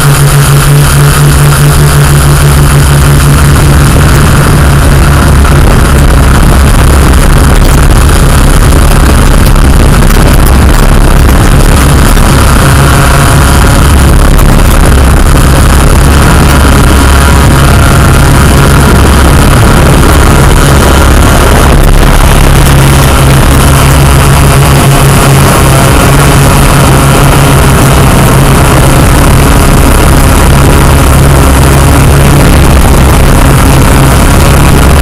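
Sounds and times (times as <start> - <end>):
drone propellers droning: 0.0 - 35.0.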